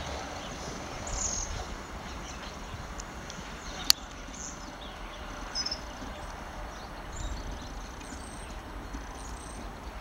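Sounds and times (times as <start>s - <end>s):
steady low rumble: 0.0s - 10.0s
high bird chirps: 3.6s - 9.7s.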